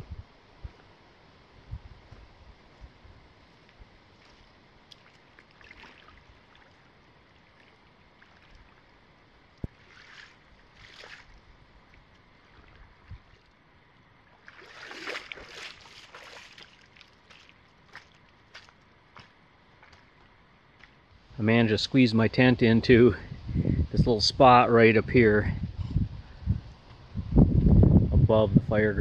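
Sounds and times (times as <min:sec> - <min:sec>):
sloshing footsteps through water: 0:03.6 - 0:13.7, 0:14.3 - 0:21.1
person wading in shallow water: 0:04.0 - 0:20.1.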